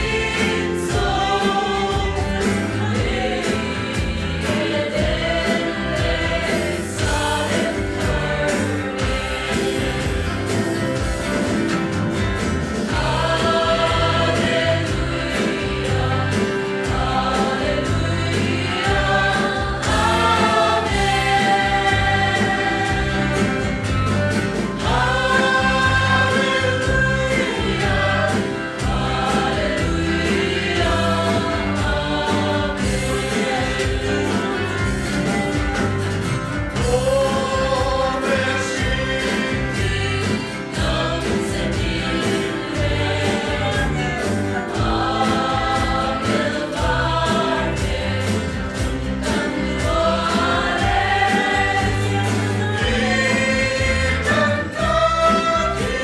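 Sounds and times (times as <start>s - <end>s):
choir singing a hymn: 0.0s - 56.0s
instrumental accompaniment with beat: 0.0s - 56.0s.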